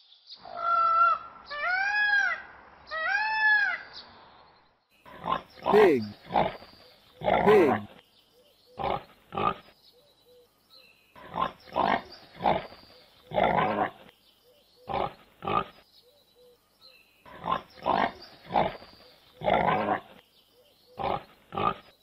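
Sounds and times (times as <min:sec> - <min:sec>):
pigs grunting: 0:05.1 - 0:06.6, 0:07.2 - 0:08.0, 0:08.8 - 0:09.6, 0:11.2 - 0:14.1, 0:14.9 - 0:15.7, 0:17.3 - 0:20.2, 0:21.0 - 0:21.9.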